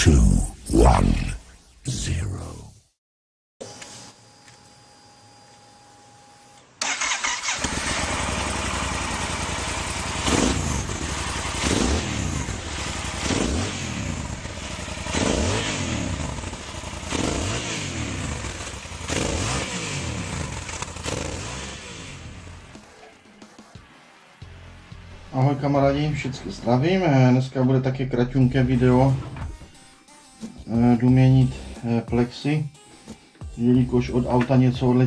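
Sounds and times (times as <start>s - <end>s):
motorcycle engines revving: 6.8s - 23.1s.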